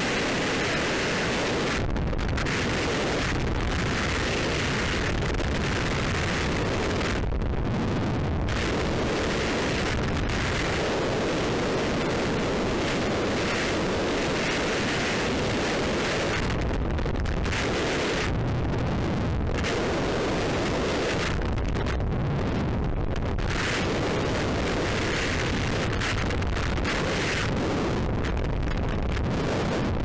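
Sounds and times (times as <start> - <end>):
wind noise on microphone: 0.0 - 30.0.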